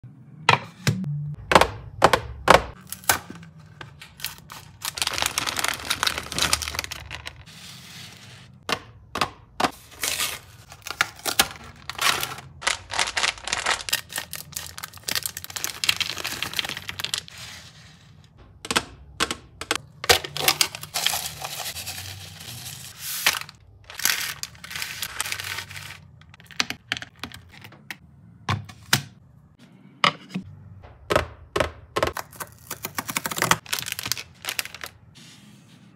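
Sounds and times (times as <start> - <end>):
packaging crinkling and tearing: 2.8 - 7.5, 9.9 - 17.5, 20.3 - 26.5, 32.2 - 35.0.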